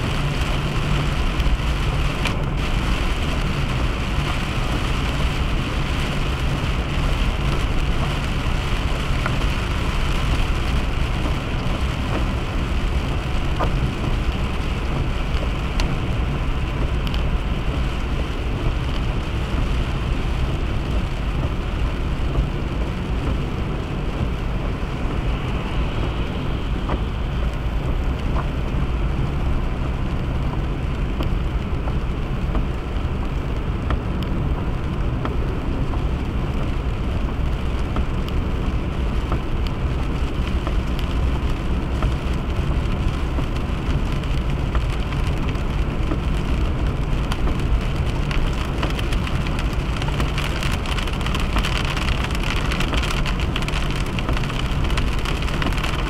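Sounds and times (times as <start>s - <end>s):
car road noise on highway: 0.0s - 56.0s.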